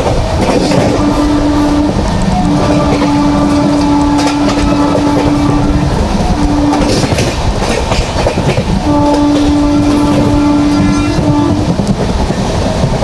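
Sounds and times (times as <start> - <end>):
train wheels clattering over rail joints: 0.0 - 13.0
locomotive horn blasts: 0.7 - 7.3, 8.8 - 11.7.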